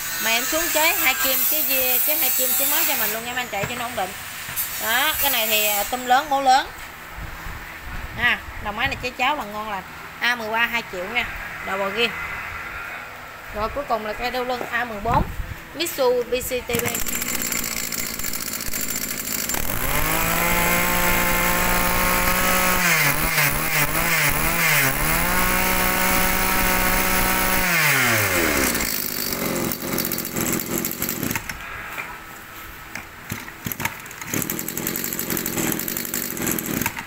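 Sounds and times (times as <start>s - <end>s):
two-stroke brush cutter engine revving: 16.7s - 31.5s, 33.3s - 37.0s.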